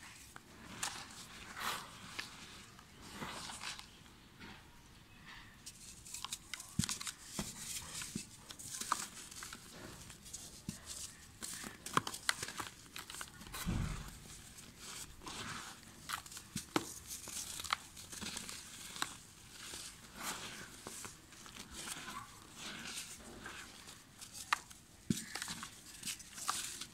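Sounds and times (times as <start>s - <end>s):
dull thump: 13.6s - 14.2s.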